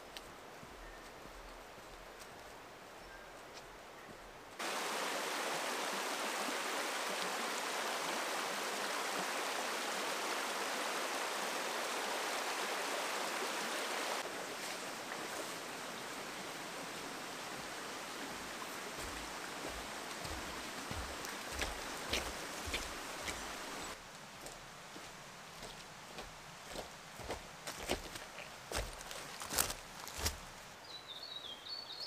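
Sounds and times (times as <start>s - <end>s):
steady background hiss: 0.0s - 31.9s
stream rushing over rocks: 4.6s - 30.6s
footsteps: 19.0s - 30.6s.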